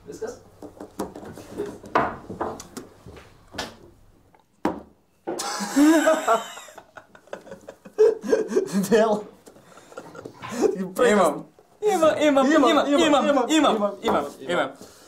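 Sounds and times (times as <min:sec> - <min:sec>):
knocks and rubbing on wooden table: 0:00.5 - 0:02.9.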